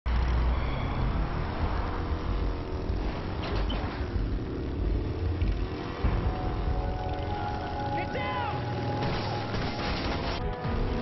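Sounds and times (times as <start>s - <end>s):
street traffic: 0.0s - 11.0s
motorcycle engine at low revs: 1.6s - 8.0s.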